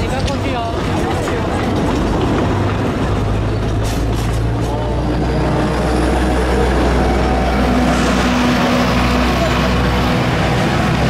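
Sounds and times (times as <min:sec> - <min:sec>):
diesel locomotive engine drone: 0:00.0 - 0:11.0
train cars rolling past: 0:00.0 - 0:11.0
high steady engine tone: 0:04.6 - 0:11.0.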